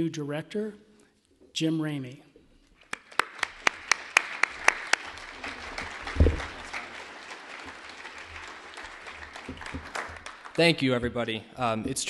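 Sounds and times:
audience applauding: 0:02.8 - 0:11.0
close sharp claps: 0:02.8 - 0:11.0.

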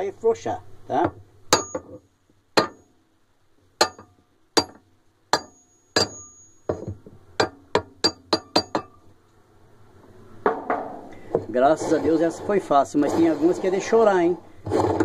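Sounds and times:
hammer striking steel bar: 0:01.5 - 0:02.0, 0:02.6 - 0:02.9, 0:03.8 - 0:09.0.

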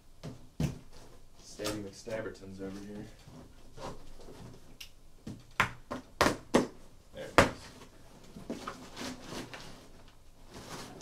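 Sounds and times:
cardboard rustling: 0:07.5 - 0:11.0.

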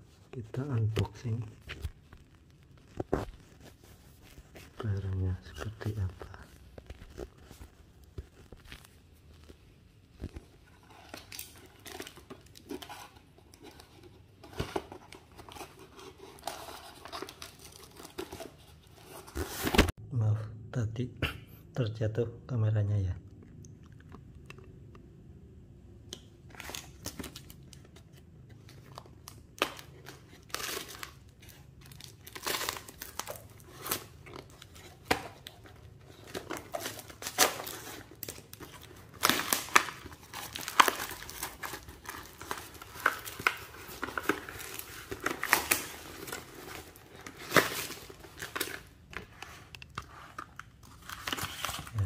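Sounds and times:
plastic wrapping crinkling: 0:01.2 - 0:20.0, 0:26.5 - 0:52.0
paper parcel being torn open: 0:28.7 - 0:49.0, 0:50.2 - 0:52.0.

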